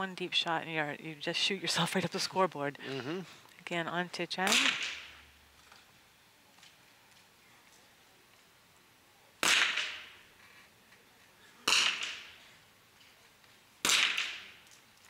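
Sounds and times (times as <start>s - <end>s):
rifle shots with echo: 4.4s - 5.2s, 9.4s - 10.2s, 11.6s - 12.4s, 13.8s - 14.6s.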